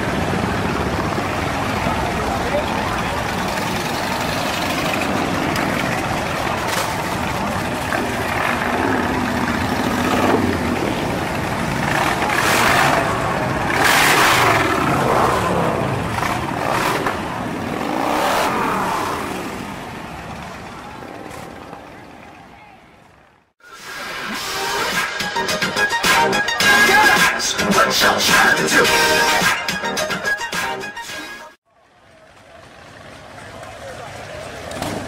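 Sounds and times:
motorcycles revving and passing: 0.0s - 23.4s, 32.0s - 35.0s.

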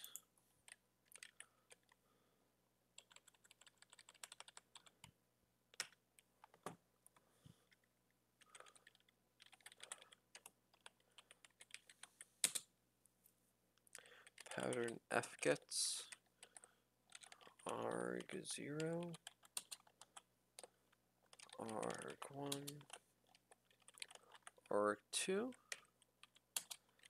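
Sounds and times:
typing on computer keyboard: 0.0s - 2.0s, 3.0s - 5.1s, 5.7s - 6.7s, 8.4s - 12.6s, 14.2s - 15.0s, 16.0s - 24.7s, 25.5s - 27.0s.

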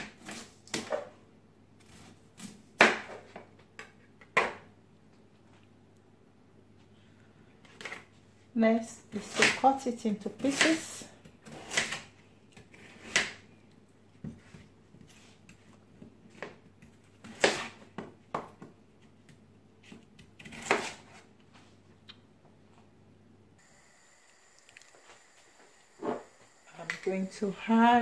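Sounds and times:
knife cutting on plastic board: 10.4s - 13.4s, 16.3s - 17.8s, 19.8s - 21.3s.

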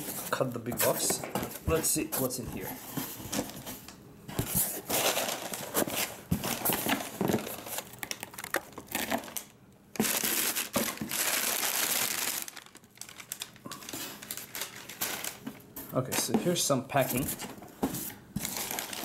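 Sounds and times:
packing paper crinkling: 4.4s - 19.0s.

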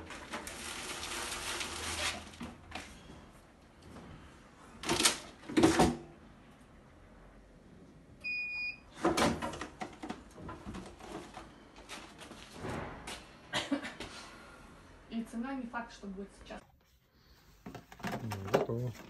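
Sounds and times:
plastic tray clattering: 17.7s - 19.0s.

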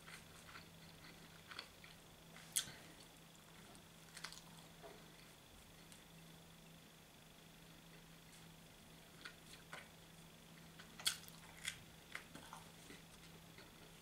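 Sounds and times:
person chewing pizza: 0.0s - 6.0s, 10.6s - 14.0s
low steady hum: 0.0s - 14.0s.

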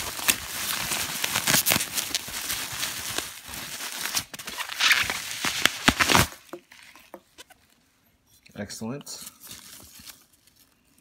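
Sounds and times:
packing peanuts rustling: 0.0s - 6.5s
bubble wrap crinkling: 0.0s - 7.5s, 9.4s - 11.0s.

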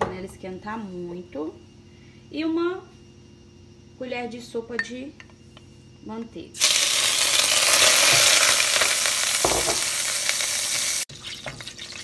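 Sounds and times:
butter sizzling in pot: 6.6s - 12.0s.

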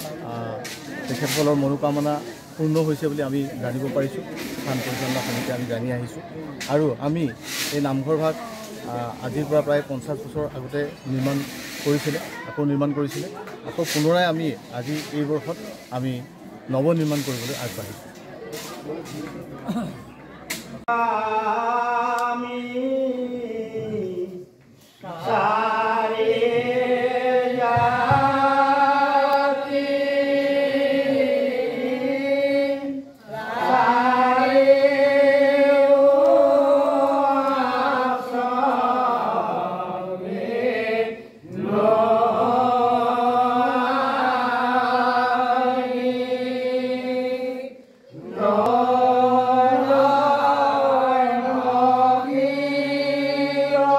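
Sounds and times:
group chanting: 20.8s - 53.9s.

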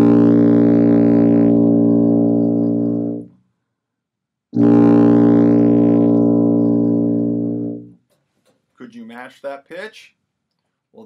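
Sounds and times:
tuba holding a low note: 0.0s - 3.4s, 4.6s - 8.0s.

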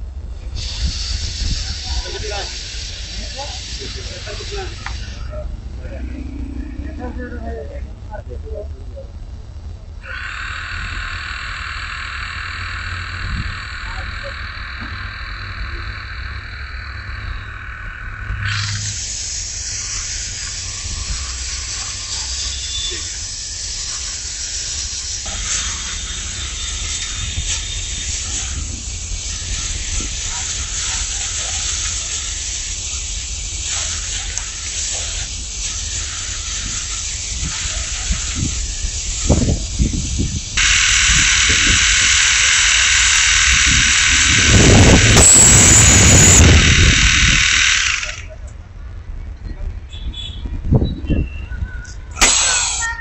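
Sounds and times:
gas torch hissing: 0.4s - 6.4s, 10.0s - 48.3s, 52.2s - 53.0s
low steady hum: 3.9s - 22.0s
low rumble: 5.1s - 21.2s
high whistle: 10.1s - 19.0s, 40.6s - 47.5s.

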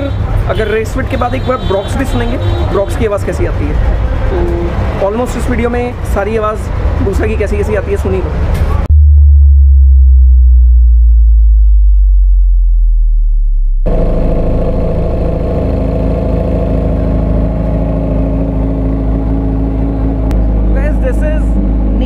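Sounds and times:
deep low bass tone: 4.3s - 5.0s, 8.8s - 22.0s
motorcycle engine running: 13.7s - 20.9s.

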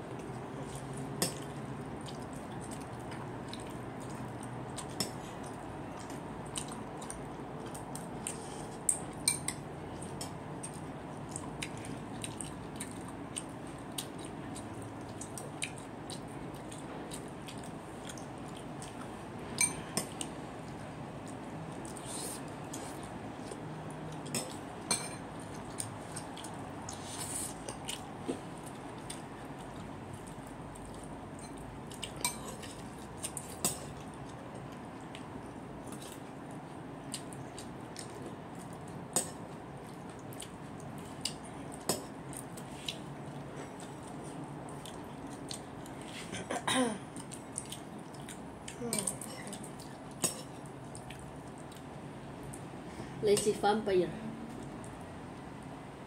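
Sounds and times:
wet lip smacks and chewing: 10.0s - 19.2s, 25.4s - 46.1s, 49.5s - 52.7s.

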